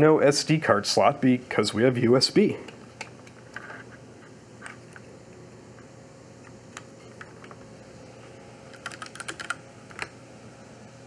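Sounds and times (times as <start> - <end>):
computer keyboard typing: 8.7 - 9.6.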